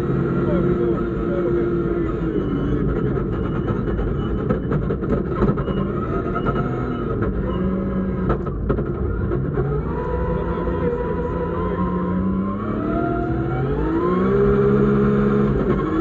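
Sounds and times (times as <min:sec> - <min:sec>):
rally car engine revving: 0:00.0 - 0:16.0
sharp clicks and knocks: 0:08.2 - 0:09.5.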